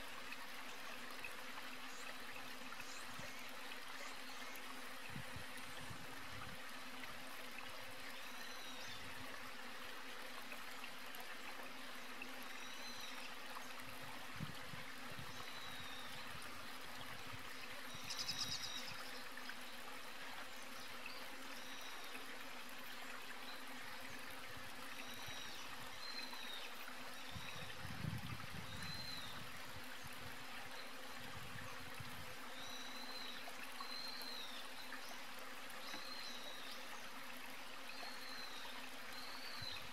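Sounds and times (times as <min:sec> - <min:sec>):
running water rushing: 0:00.0 - 0:39.9.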